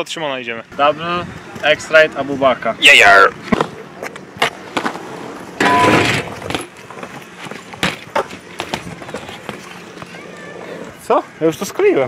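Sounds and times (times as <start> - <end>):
bike scraping on concrete ledge: 3.4 - 11.0
bike rolling over brick paving: 4.4 - 10.8.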